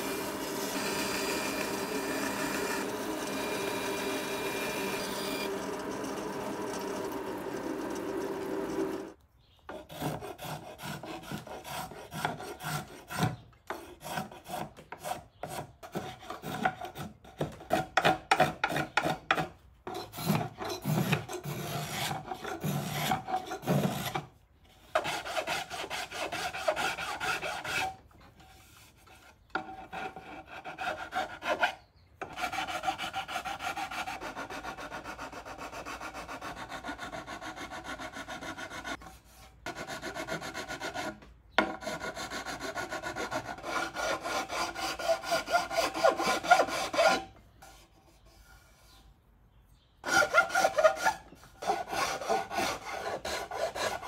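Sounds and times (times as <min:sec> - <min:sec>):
hand file rasping on wood: 0:09.7 - 0:24.2, 0:24.9 - 0:48.5, 0:50.0 - 0:54.0.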